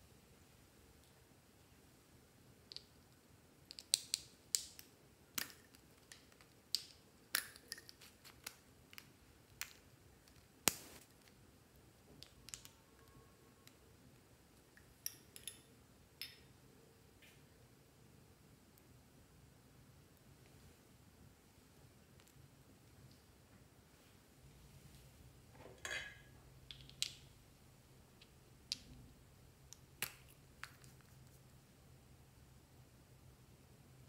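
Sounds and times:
plastic tubes clicking: 12.2 - 13.8.

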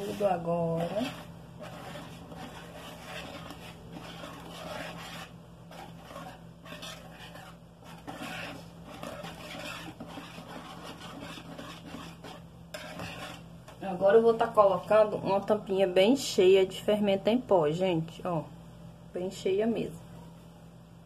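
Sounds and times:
whisk swishing batter in bowl: 0.0 - 14.6.

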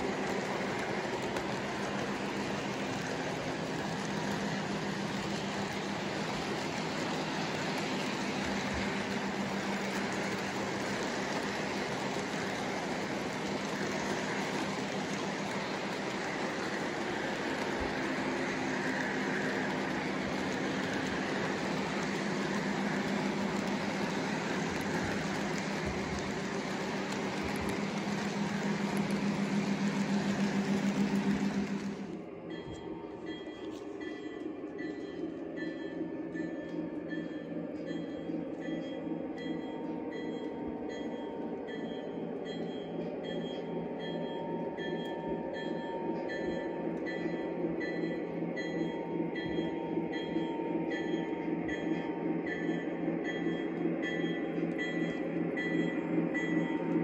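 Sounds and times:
model train cars rolling on track: 0.0 - 57.0
low hum: 19.9 - 43.8.

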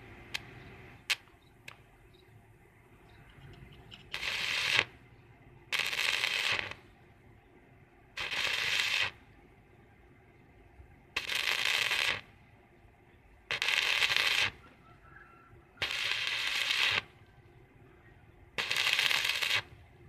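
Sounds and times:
welding arc crackling: 0.0 - 1.9, 3.9 - 5.0, 5.7 - 6.8, 8.2 - 9.2, 11.1 - 12.4, 13.5 - 14.7, 15.8 - 17.2, 18.6 - 19.9.

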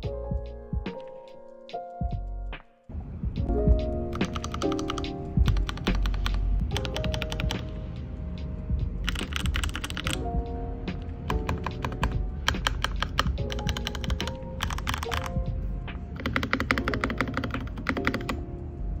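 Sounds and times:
lo-fi music: 0.0 - 19.0
mechanical keyboard typing: 4.1 - 7.8, 9.0 - 10.2, 11.2 - 15.4, 16.1 - 18.4.

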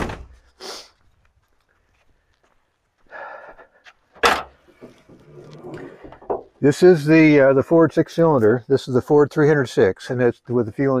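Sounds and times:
breathy sound: 3.0 - 4.0, 4.8 - 6.3
hood latch metal clunk: 4.2 - 5.0.

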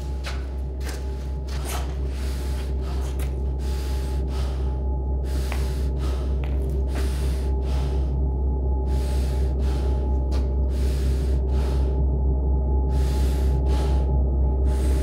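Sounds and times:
steady low drone: 0.0 - 15.0
person breathing through respirator: 1.8 - 8.2, 8.8 - 12.1, 12.8 - 15.0.

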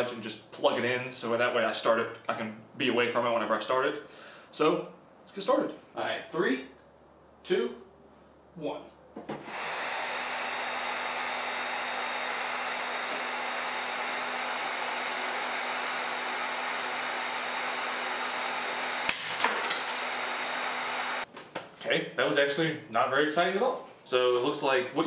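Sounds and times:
gas rushing out: 9.4 - 21.2
heat gun blowing: 9.4 - 21.3.

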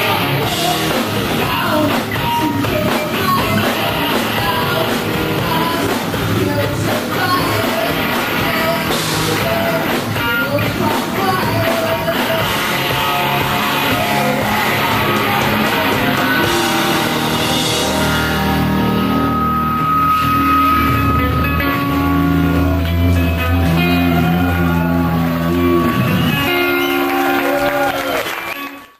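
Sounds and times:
woman singing: 0.0 - 17.2
rock band playing live: 0.0 - 28.9.

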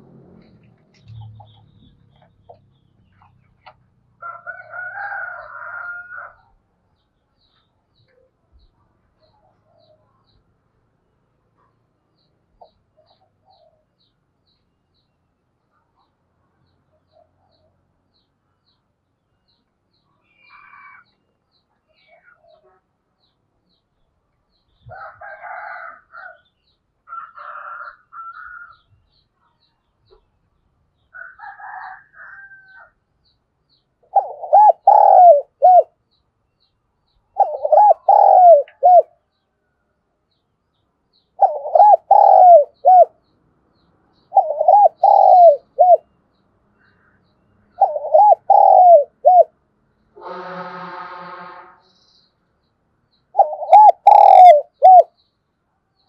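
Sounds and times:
faint bird calls: 20.0 - 23.4, 34.0 - 36.0, 37.2 - 39.2, 41.2 - 43.3, 44.2 - 49.6, 53.3 - 55.2
dove cooing: 34.0 - 35.9, 37.4 - 39.2, 41.4 - 43.2, 44.3 - 46.1, 47.8 - 49.5, 53.4 - 55.1.

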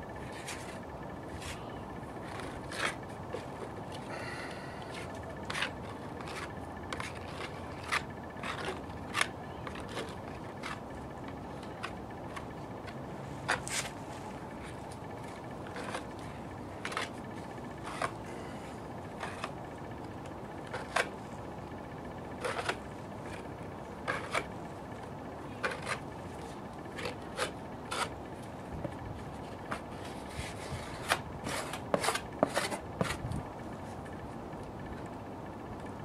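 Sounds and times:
filler scraping on wood: 22.4 - 23.4, 29.7 - 33.2.

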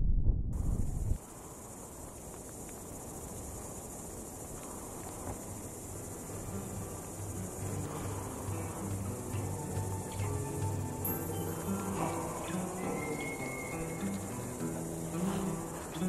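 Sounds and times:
wind rumble on microphone: 0.0 - 10.0
insects shrilling: 1.2 - 16.0.

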